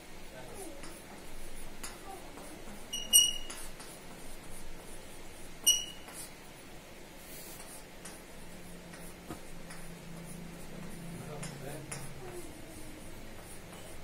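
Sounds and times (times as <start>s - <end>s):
chalk scratching on blackboard: 0.8s - 6.4s, 7.2s - 14.0s
chalk squeak: 2.8s - 3.8s, 5.6s - 6.3s.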